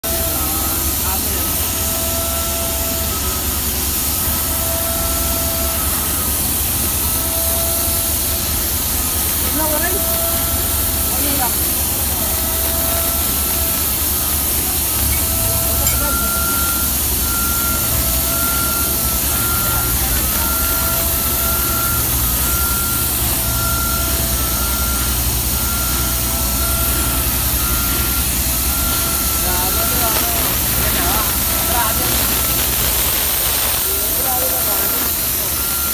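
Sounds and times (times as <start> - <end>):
machine motor hissing: 0.1 - 35.9
thin high tone: 9.4 - 35.9.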